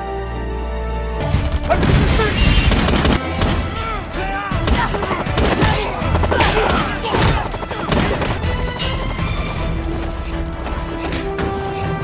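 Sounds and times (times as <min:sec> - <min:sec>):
dramatic score music: 0:00.0 - 0:12.0
gunfire and impacts: 0:04.6 - 0:09.5.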